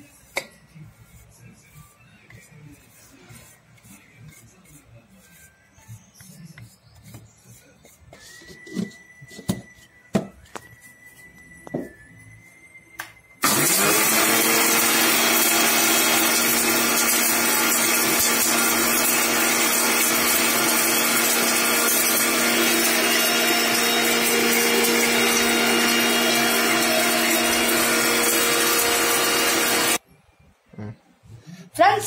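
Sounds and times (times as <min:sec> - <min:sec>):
mixer grinder grinding spices: 0:13.4 - 0:30.0.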